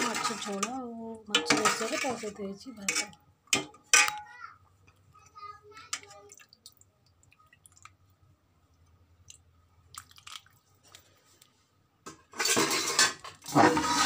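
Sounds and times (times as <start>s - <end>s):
ladle clinking against pots: 0.0s - 4.3s.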